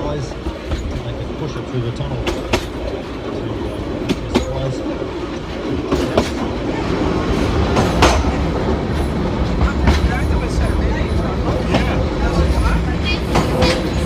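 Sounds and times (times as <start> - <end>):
wheel clacks over rail joints: 0.0 - 6.7
train rumble: 0.0 - 14.0.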